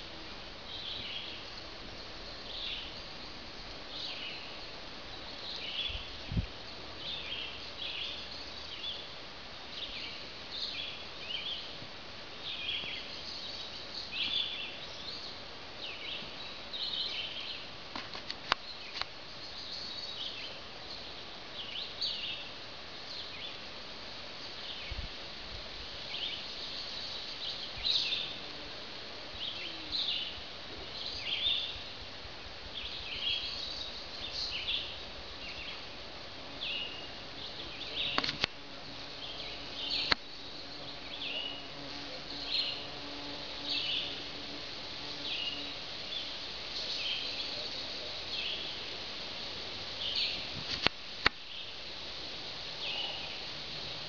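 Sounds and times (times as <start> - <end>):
steady outdoor hiss: 0.0 - 54.0
other songbirds: 0.6 - 17.8, 18.5 - 23.7, 26.0 - 28.5, 29.3 - 32.0, 32.7 - 50.8, 52.6 - 54.0
robins singing: 26.0 - 32.0, 32.7 - 50.6, 52.6 - 54.0.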